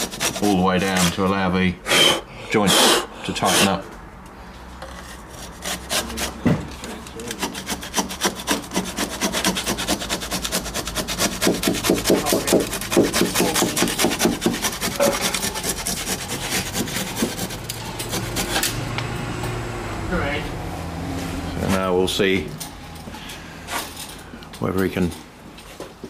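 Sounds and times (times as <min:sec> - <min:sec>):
hand saw cutting wood: 0:00.0 - 0:03.8, 0:04.9 - 0:18.9.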